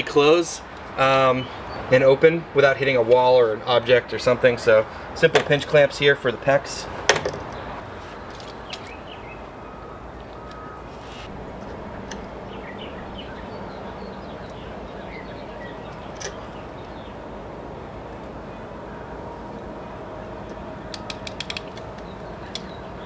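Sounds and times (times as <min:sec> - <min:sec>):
outdoor background noise: 0:00.0 - 0:23.0
small birds chirping: 0:01.0 - 0:01.9, 0:07.4 - 0:17.4, 0:20.5 - 0:23.0.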